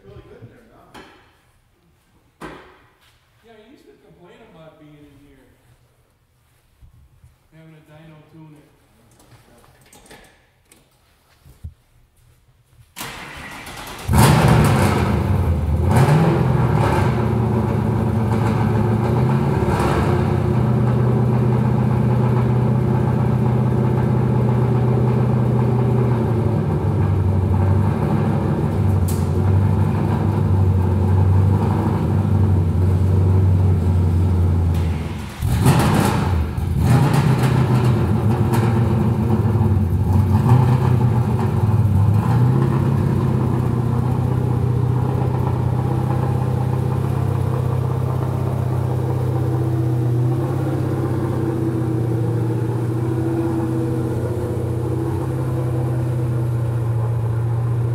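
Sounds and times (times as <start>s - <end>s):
car engine idling: 13.0s - 57.9s.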